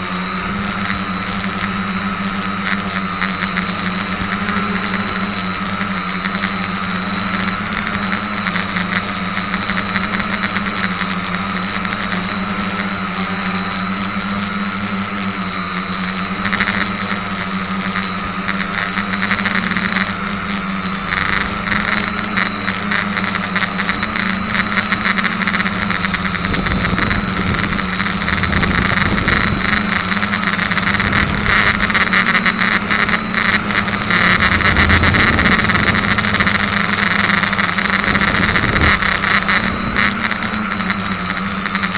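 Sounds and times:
crackling air rush: 0:00.0 - 0:41.9
drone propellers whining: 0:00.0 - 0:41.9.

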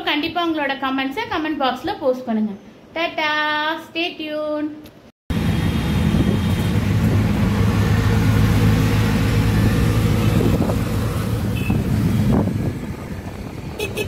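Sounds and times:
road and traffic noise: 0:04.8 - 0:14.0
auto-rickshaw engine running: 0:05.3 - 0:14.0.

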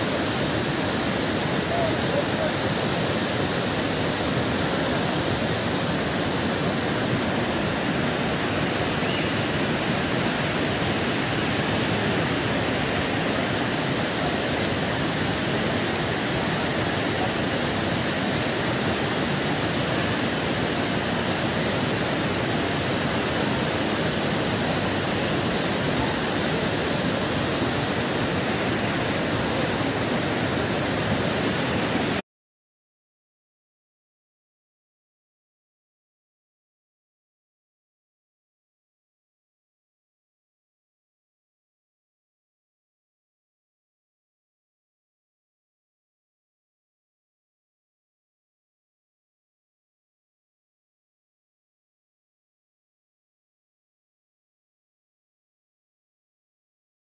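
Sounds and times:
rushing mountain stream: 0:00.0 - 0:32.2.

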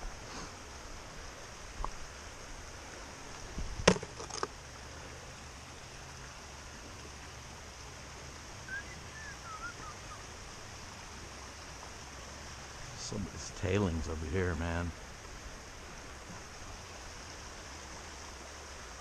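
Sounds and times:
creek running over rocks: 0:00.0 - 0:19.0
wavering bird call: 0:08.6 - 0:10.3.

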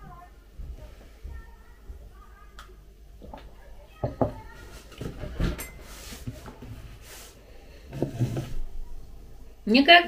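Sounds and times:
mug knocking on table: 0:04.0 - 0:04.4.

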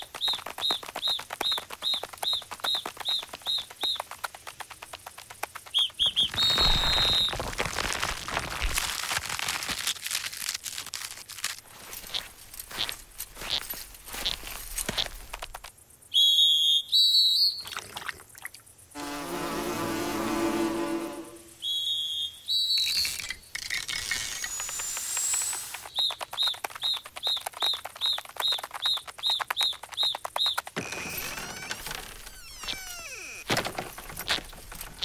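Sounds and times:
soft footsteps on grass: 0:09.8 - 0:15.5
rising whistle: 0:19.0 - 0:23.0
high squeaky cartoon chirps: 0:30.8 - 0:33.5.

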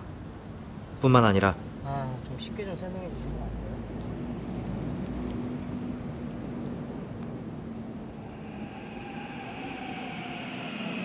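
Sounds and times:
train wheels rumbling on rails: 0:03.4 - 0:11.0
high wheel squeal: 0:08.2 - 0:11.0.

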